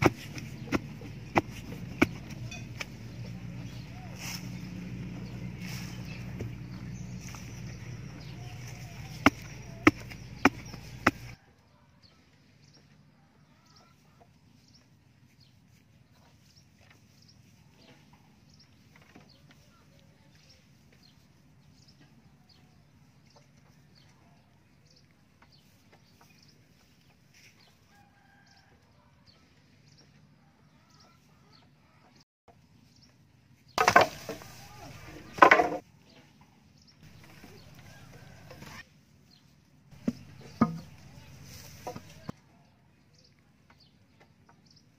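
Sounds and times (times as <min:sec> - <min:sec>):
wooden stake knocked into ground: 0:00.0 - 0:03.0, 0:08.1 - 0:11.4, 0:33.8 - 0:34.5, 0:35.3 - 0:35.8, 0:40.0 - 0:41.0
bird chirps: 0:00.0 - 0:11.4.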